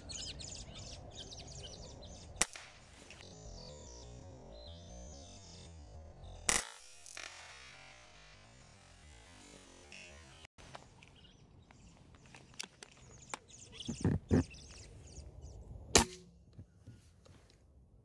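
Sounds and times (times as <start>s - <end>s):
air rifle shot with ringing: 2.4s - 2.9s, 15.9s - 16.3s.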